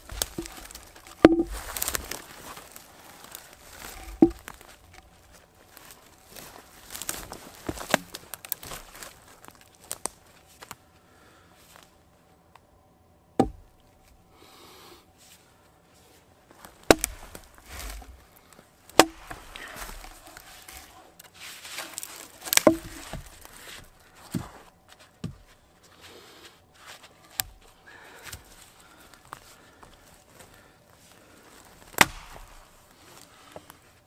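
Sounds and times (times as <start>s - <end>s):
axe chopping log: 0.0s - 2.2s, 3.8s - 4.6s, 13.4s - 13.7s, 16.8s - 18.2s, 18.9s - 20.9s, 22.0s - 23.5s, 31.9s - 32.8s.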